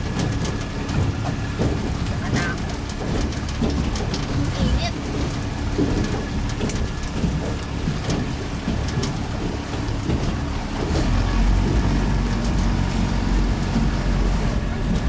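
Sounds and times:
outboard motor running: 0.0 - 15.0
water rushing past hull: 0.0 - 15.0.

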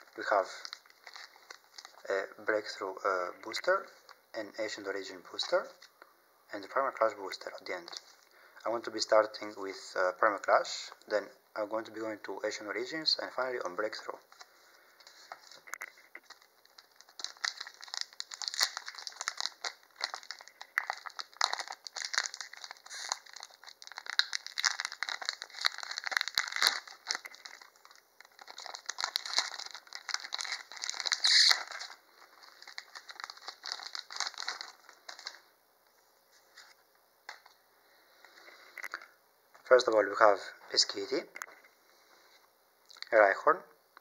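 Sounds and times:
foil wrapper crinkling: 0.0 - 2.2, 14.3 - 35.5, 36.4 - 37.6.

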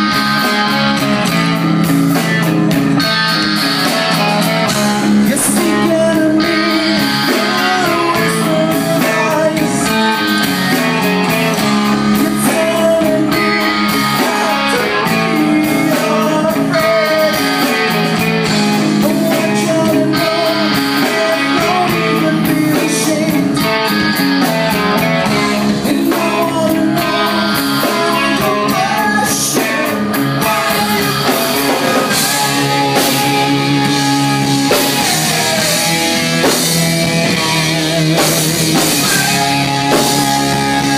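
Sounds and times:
drum kit: 0.0 - 40.9
electric guitar: 0.0 - 40.9
man singing into microphone: 5.2 - 10.5, 11.9 - 18.1, 18.8 - 23.9, 25.2 - 36.3, 37.3 - 40.9.

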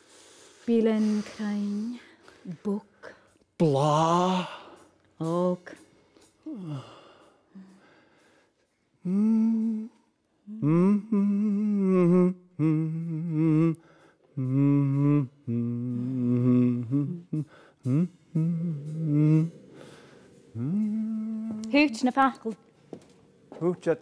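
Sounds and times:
person humming a slow tune: 3.6 - 8.0, 8.7 - 22.2.

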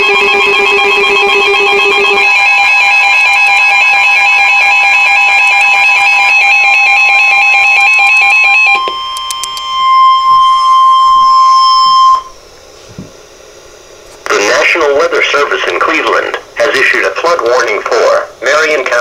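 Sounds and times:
warbling radio alarm: 0.0 - 12.5
steady alarm tone: 0.0 - 12.6.

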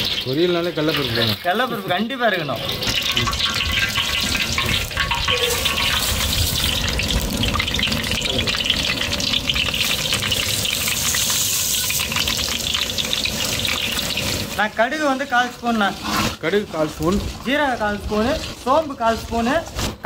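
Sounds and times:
lentils poured into pan: 0.0 - 8.8
seeds frying in hot oil: 0.0 - 19.8
oil sizzling with dense crackling: 0.0 - 20.0.

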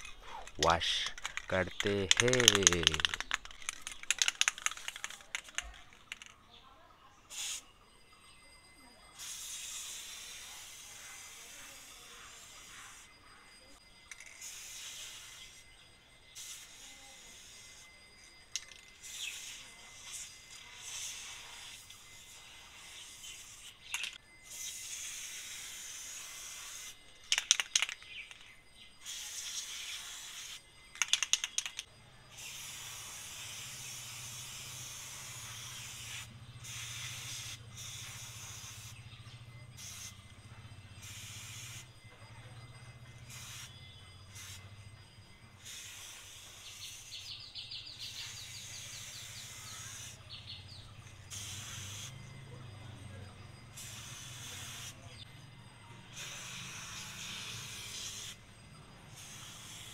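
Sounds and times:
sharp clicks: 0.0 - 6.4, 30.9 - 31.9
aerosol spray hissing: 7.3 - 7.6, 9.2 - 13.1, 14.3 - 15.6, 16.3 - 17.8, 19.0 - 23.8, 24.5 - 27.0, 29.0 - 30.6, 32.3 - 39.0, 39.8 - 40.1, 41.0 - 41.9, 43.3 - 43.7, 44.3 - 44.7, 45.6 - 47.4, 48.1 - 50.4, 51.3 - 52.2, 53.8 - 55.1, 56.2 - 58.4, 59.1 - 59.9.

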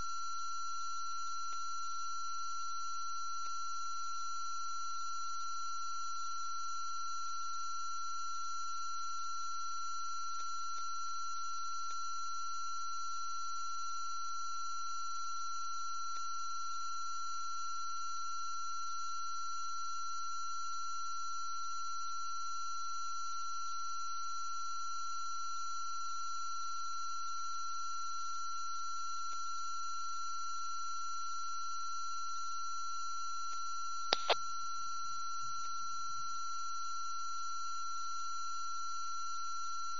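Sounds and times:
short clicks: 34.1 - 34.4.

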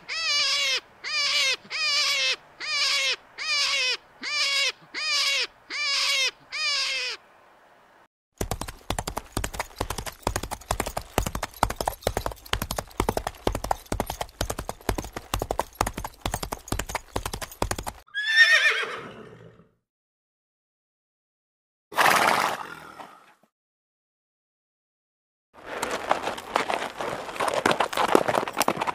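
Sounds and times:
horse hooves clip-clopping: 8.4 - 18.0, 25.6 - 28.9
horse whinnying: 18.1 - 19.7.

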